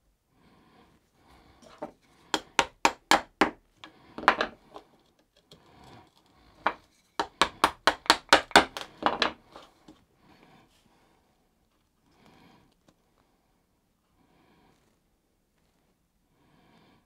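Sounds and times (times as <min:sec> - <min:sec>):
chisel knocking into wood: 0:02.3 - 0:03.6, 0:06.7 - 0:09.4.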